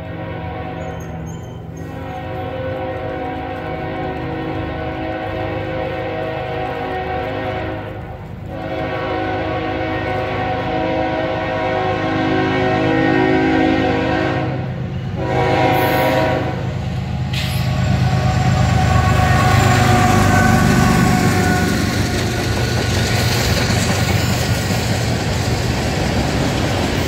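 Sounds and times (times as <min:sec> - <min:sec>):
locomotive horn blasts: 0:00.0 - 0:01.2, 0:01.8 - 0:22.4
train engine rumble: 0:00.0 - 0:27.0.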